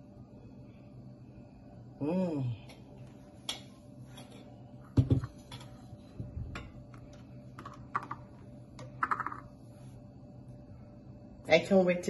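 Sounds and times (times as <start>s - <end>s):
dull thud on countertop: 5.0s - 5.3s.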